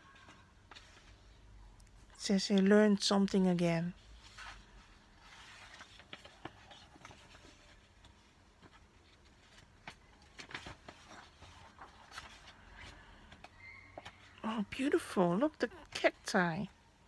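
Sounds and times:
magazine pages turning: 0.1 - 1.5, 4.0 - 14.4.

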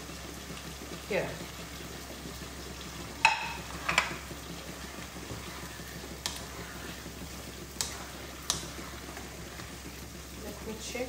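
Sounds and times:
curry simmering hiss: 0.0 - 11.0
spatula knocking on pan: 3.2 - 4.2.

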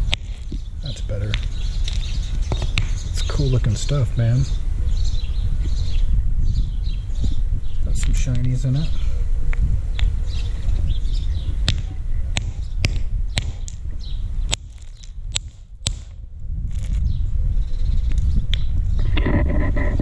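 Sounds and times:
steady low rumble: 0.0 - 20.0
rock fragments clicking together: 14.5 - 17.1.

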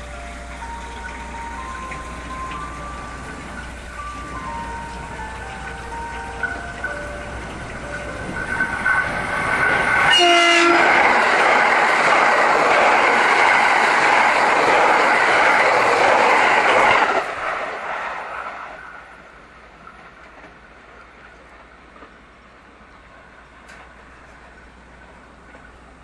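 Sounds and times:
train passing at speed: 0.0 - 26.0
train horn blast: 10.1 - 11.2.

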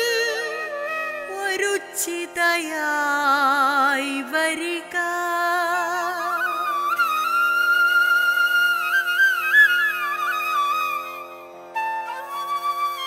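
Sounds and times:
flute slow melody: 6.7 - 13.0.

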